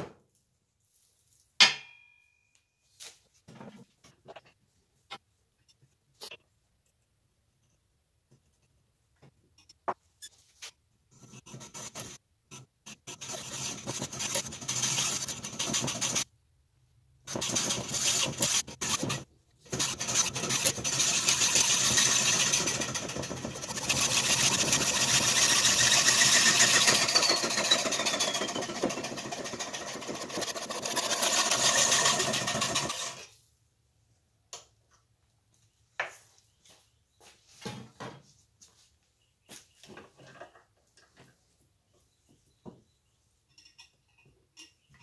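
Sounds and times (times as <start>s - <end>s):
hacksaw cutting metal pipe: 13.0s - 16.2s, 17.3s - 33.3s.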